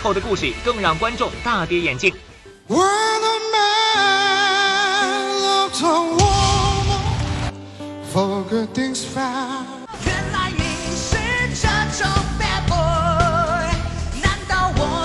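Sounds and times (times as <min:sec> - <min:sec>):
man singing pop song: 0:02.6 - 0:15.0
band with drums: 0:06.2 - 0:07.5.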